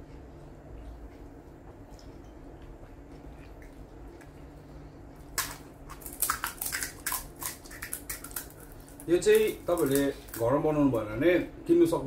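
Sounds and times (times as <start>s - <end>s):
crisp shells cracking and crunching: 5.3s - 10.7s.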